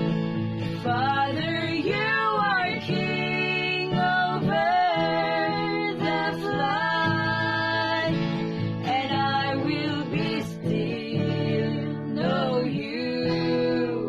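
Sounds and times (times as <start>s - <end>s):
guitar accompaniment: 0.0s - 14.0s
women singing a worship song: 0.8s - 14.0s.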